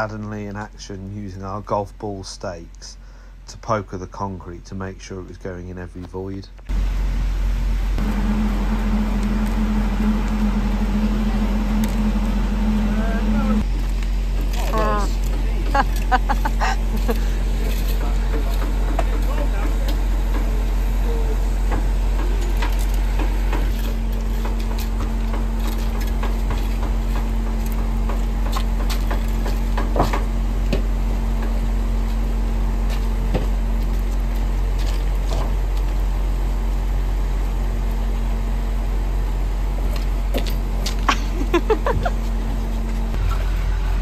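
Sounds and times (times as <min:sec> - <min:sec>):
diesel engines running: 0:00.0 - 0:44.0
people laughing: 0:14.8 - 0:18.2, 0:41.1 - 0:42.3.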